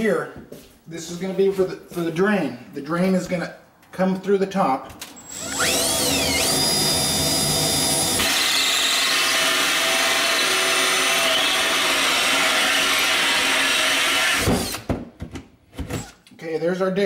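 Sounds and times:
drill cutting through wood: 0:05.2 - 0:14.9.

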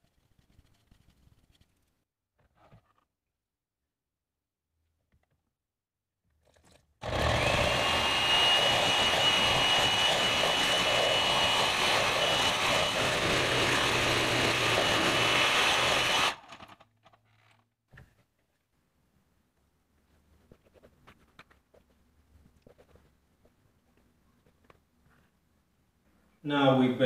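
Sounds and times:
electric hand mixer whisking: 0:07.0 - 0:16.6.

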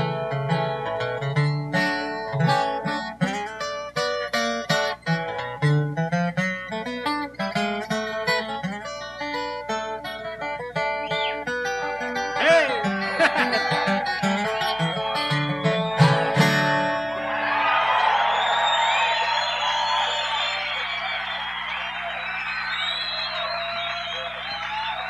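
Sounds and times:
acoustic guitar flatpicked runs: 0:00.0 - 0:17.4
fiddle: 0:11.2 - 0:17.2.

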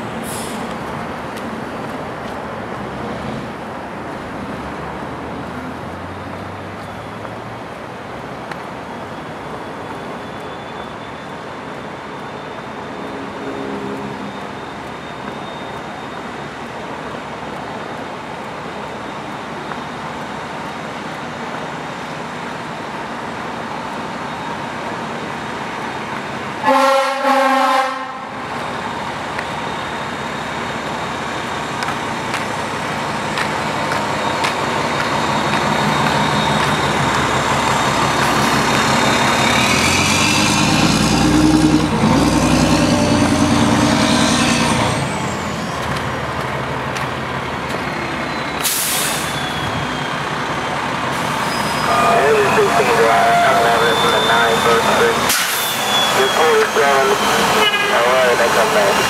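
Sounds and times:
fire engine running: 0:00.0 - 0:59.0
fire engine horn: 0:26.6 - 0:28.4, 0:51.7 - 0:59.0.

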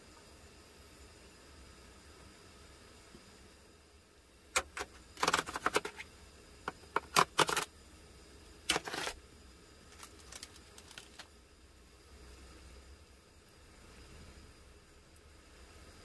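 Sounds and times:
plastic tray crackling and clicking: 0:04.6 - 0:06.0, 0:06.7 - 0:07.7, 0:08.7 - 0:09.2, 0:09.9 - 0:11.3.

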